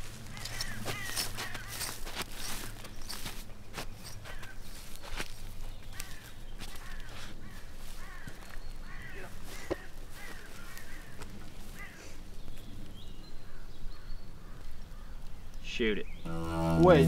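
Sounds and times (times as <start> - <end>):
crow cawing: 0.2 - 2.6, 4.2 - 4.6, 5.9 - 12.2.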